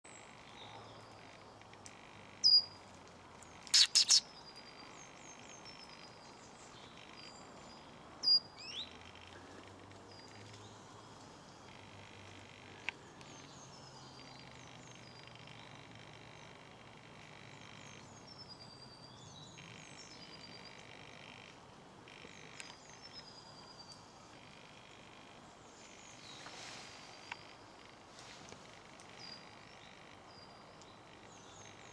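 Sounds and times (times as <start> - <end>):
small songbirds chirping: 0.1 - 31.9
sharp loud strokes: 3.7 - 4.2.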